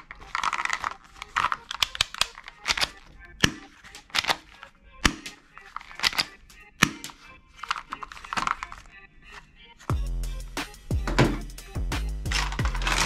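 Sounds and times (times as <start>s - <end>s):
plastic toy guns clicking: 0.0s - 9.0s.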